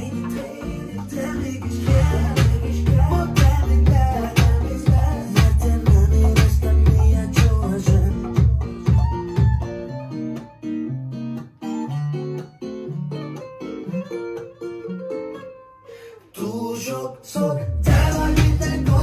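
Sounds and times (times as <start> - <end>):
pop song beat and bass: 0.0 - 10.8, 16.4 - 19.0.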